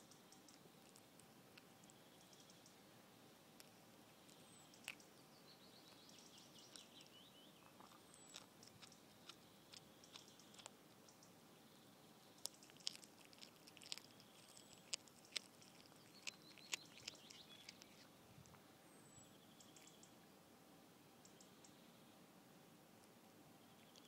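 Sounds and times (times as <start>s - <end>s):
cat chewing and crunching: 0.0s - 2.6s, 3.5s - 5.1s, 5.9s - 11.1s, 12.1s - 18.6s
faint bird chirps: 1.8s - 3.3s, 4.1s - 12.7s, 13.8s - 20.3s, 21.2s - 22.2s, 23.6s - 24.0s.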